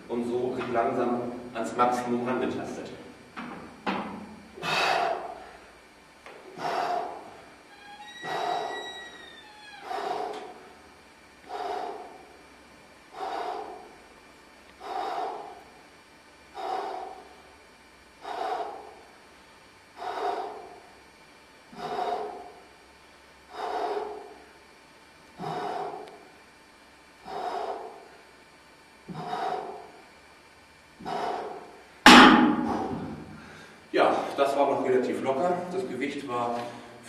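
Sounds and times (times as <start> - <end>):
man breathing heavily: 4.5 - 26.6, 27.2 - 28.4, 29.0 - 30.3, 30.9 - 34.5.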